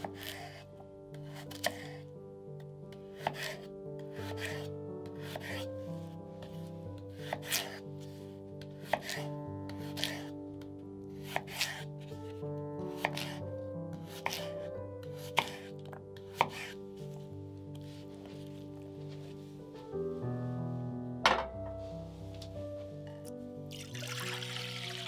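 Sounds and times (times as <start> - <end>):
knife cutting potatoes on board: 0.0 - 2.0, 3.1 - 5.7, 6.4 - 10.4, 11.1 - 12.2, 12.9 - 16.8
soft background music: 0.0 - 25.0.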